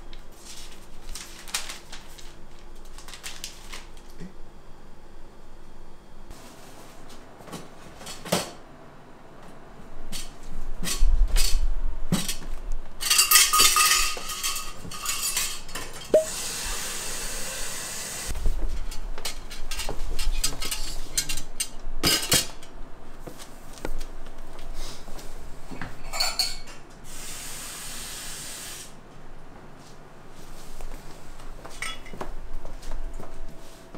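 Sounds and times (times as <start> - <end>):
bar tools and dishes clinking: 13.0 - 16.4, 26.0 - 26.8, 31.7 - 32.2.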